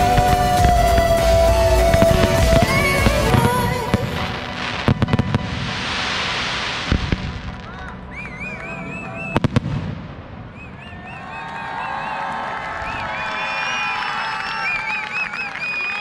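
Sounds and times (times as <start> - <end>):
fireworks crackling hiss: 0.0 - 7.8
fireworks whistles warbling: 0.0 - 9.8, 10.4 - 16.0
fireworks bangs: 0.0 - 11.4.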